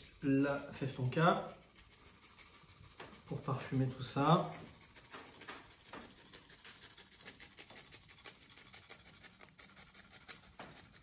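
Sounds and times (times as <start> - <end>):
grating scratching strokes: 0.0 - 11.0.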